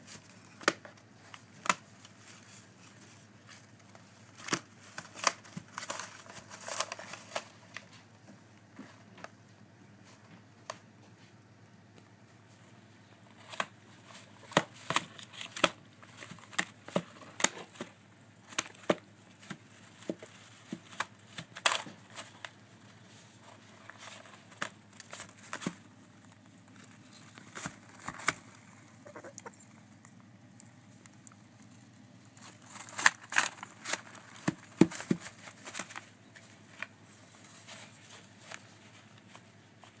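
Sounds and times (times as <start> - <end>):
paper rustling: 0.0 - 8.1, 13.3 - 29.6, 30.8 - 40.0.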